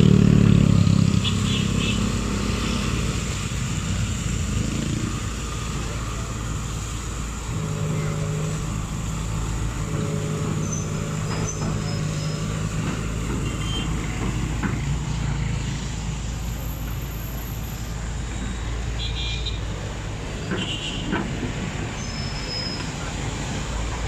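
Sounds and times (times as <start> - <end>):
diesel engine running: 0.0 - 19.0
steady droning tone: 2.1 - 15.7.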